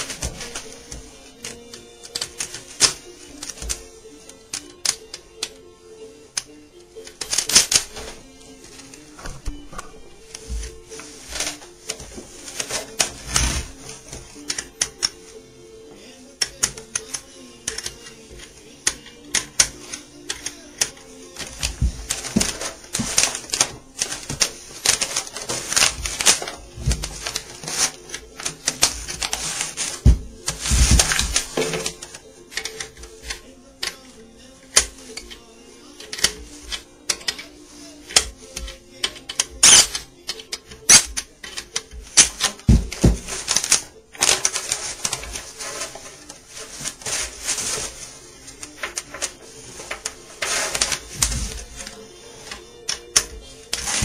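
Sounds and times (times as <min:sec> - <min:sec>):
paper towel rubbing: 0:10.3 - 0:14.5, 0:21.0 - 0:32.2, 0:41.9 - 0:52.7, 0:53.6 - 0:54.0
metal hooks clicking: 0:36.0 - 0:54.0.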